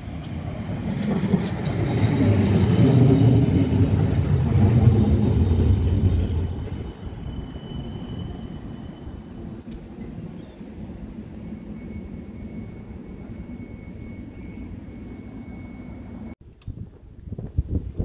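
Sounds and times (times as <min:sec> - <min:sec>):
tram wheels rumbling on rails: 0:00.0 - 0:18.0.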